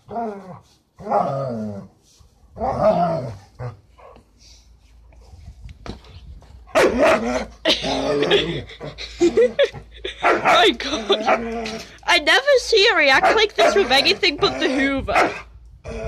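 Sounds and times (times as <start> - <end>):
dog barking and growling: 0.0 - 1.9, 2.5 - 4.2, 6.6 - 12.0, 13.1 - 16.0
broom sweeping: 0.3 - 1.0, 1.8 - 2.5.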